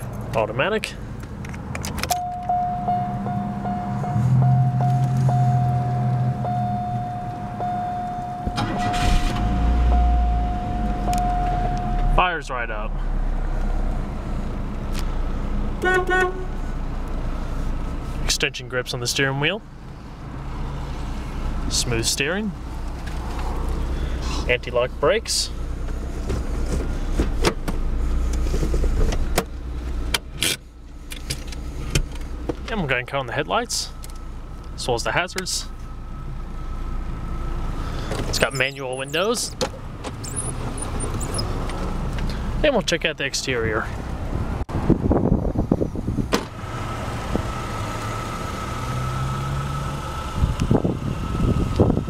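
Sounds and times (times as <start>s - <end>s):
car engine idling: 0.8s - 44.2s
gear selector clicks and clunk: 1.2s - 2.7s, 25.8s - 32.7s.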